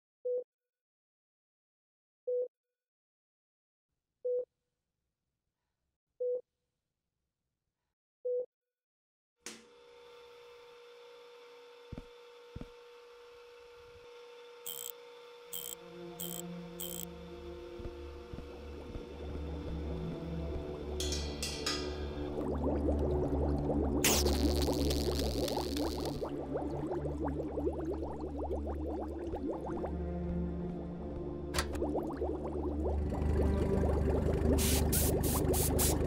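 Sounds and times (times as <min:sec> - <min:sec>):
electrical machine hum: 0:09.5 - 0:22.4, 0:30.7 - 0:36.0
short electronic beeps: 0:14.7 - 0:14.9, 0:15.6 - 0:17.0.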